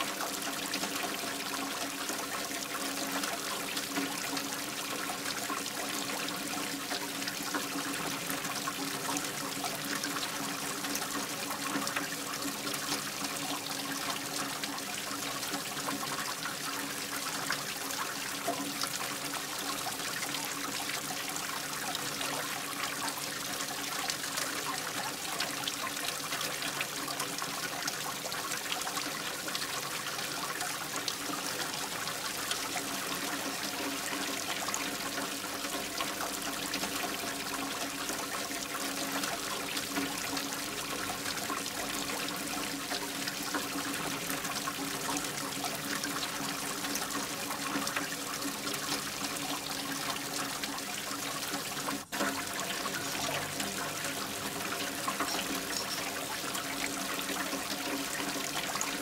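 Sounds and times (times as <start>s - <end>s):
trickling running water: 0.0s - 59.0s.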